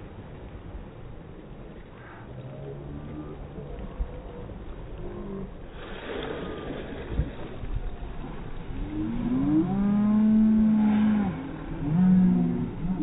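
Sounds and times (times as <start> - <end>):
water noise: 0.0 - 13.0
wind: 0.0 - 13.0
boat engine revving: 8.3 - 13.0.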